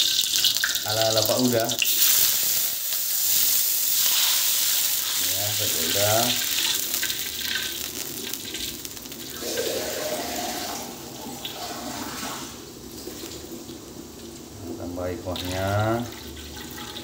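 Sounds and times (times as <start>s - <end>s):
water bubbling in wok: 4.7s - 14.6s, 15.4s - 17.0s.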